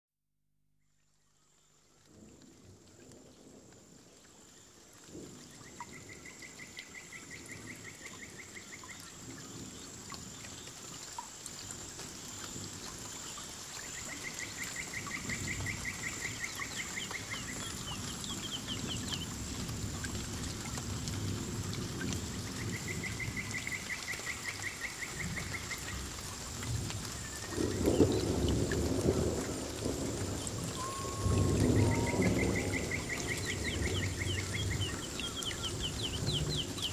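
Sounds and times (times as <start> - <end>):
waterfall splashing: 23.5 - 36.9.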